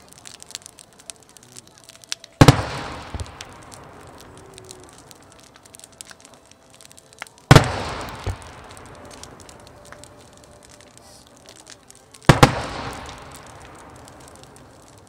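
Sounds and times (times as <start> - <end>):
fireworks booming: 2.4 - 5.4, 7.5 - 15.0.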